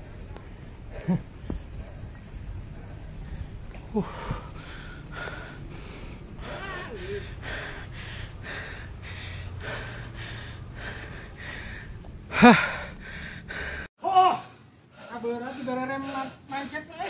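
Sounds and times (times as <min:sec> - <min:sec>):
man panting hard: 0:00.2 - 0:13.9
loud voiced cry: 0:14.0 - 0:14.5.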